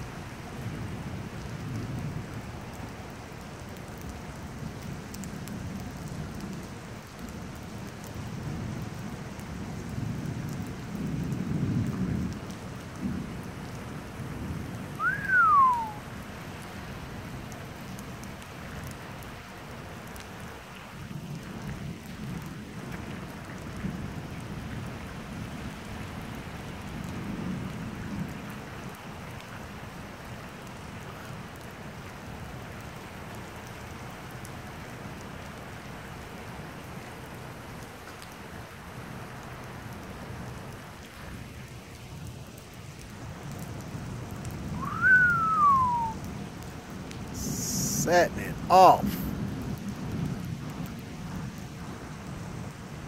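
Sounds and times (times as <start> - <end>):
rain pattering: 0.0 - 53.0
low rolling thunder: 8.3 - 16.0, 43.5 - 47.6, 48.5 - 53.0
rising and falling whistle: 15.0 - 16.0, 44.8 - 46.2.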